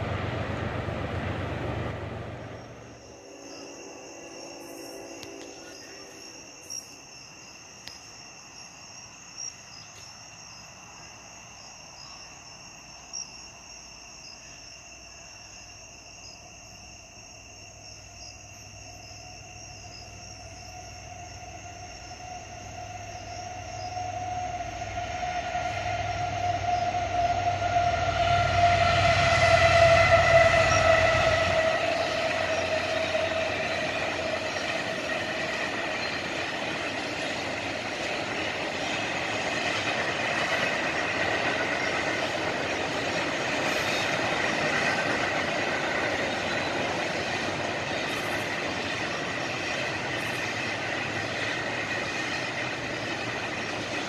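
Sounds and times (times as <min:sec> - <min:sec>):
locomotive rumble: 0:00.0 - 0:06.6, 0:20.0 - 0:54.0
steady whine: 0:00.0 - 0:06.9
crickets chirping: 0:00.0 - 0:54.0
rail noise: 0:00.0 - 0:54.0.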